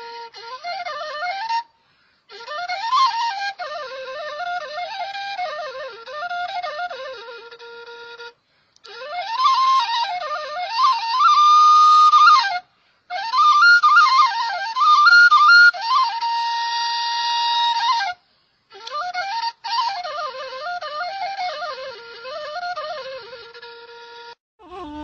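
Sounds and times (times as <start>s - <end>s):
flute melody: 0.0s - 25.0s.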